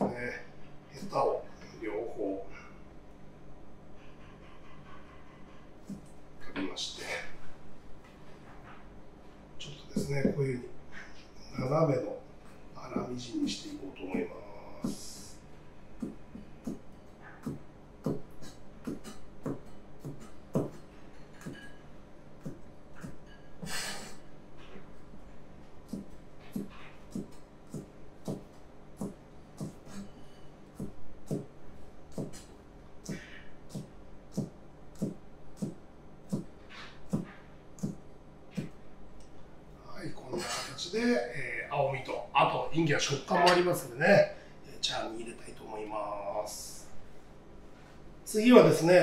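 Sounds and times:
cleaver chopping on cutting board: 17.4 - 20.8, 25.9 - 30.1, 30.8 - 31.5, 32.1 - 36.5, 37.1 - 38.8.

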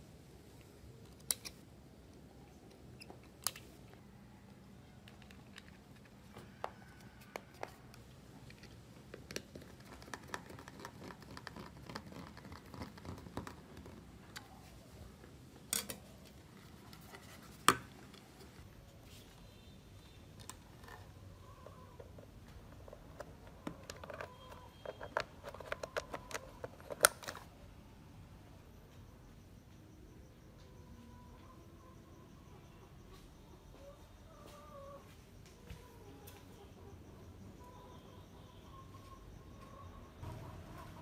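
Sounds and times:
plastic parts clicking and knocking: 4.9 - 14.5, 20.4 - 27.5.

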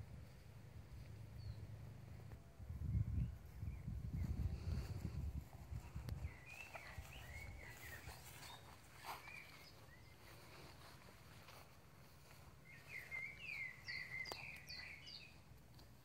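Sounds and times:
songbirds whistling and chirping: 2.8 - 15.5.

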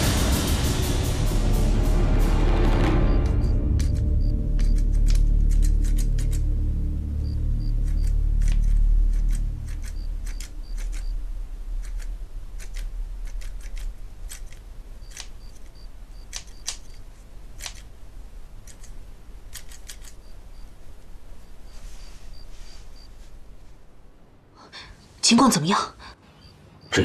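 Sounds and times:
low drone: 0.0 - 15.0.

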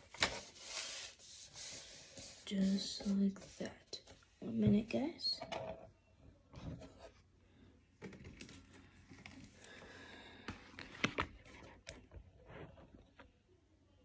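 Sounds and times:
paper rustle: 0.0 - 4.1.

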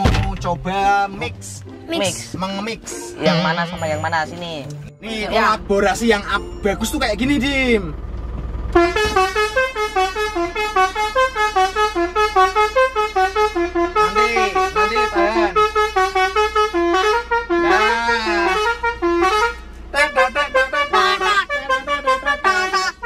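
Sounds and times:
musical trumpet horns melody: 2.9 - 4.2, 8.7 - 23.0.

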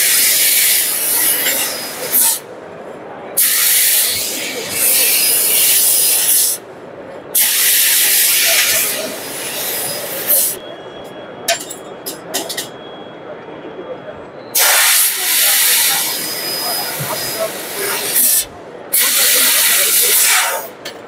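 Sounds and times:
assist gas hissing: 3.4 - 6.6, 7.4 - 10.6, 14.6 - 20.7.

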